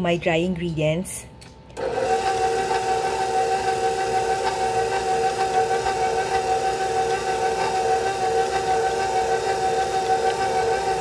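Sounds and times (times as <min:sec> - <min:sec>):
stand mixer motor whining: 0:01.8 - 0:11.0.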